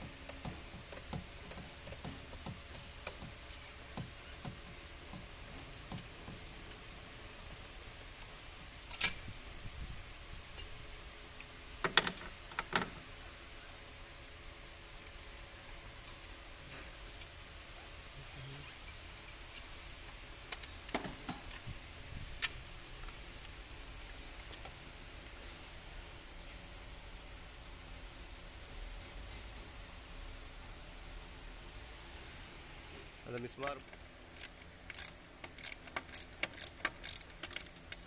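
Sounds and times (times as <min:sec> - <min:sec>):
socket wrench metallic clinks: 0:08.9 - 0:09.3, 0:18.9 - 0:19.9.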